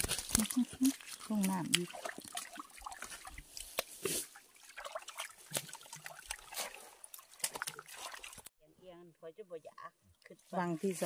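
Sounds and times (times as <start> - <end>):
pond water splashing: 0.0 - 8.5
sharp little splashes: 0.0 - 8.5.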